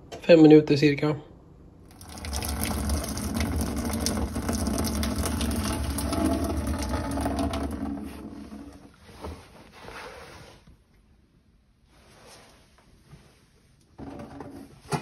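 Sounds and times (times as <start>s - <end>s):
water pouring into steel sink: 1.9s - 8.8s.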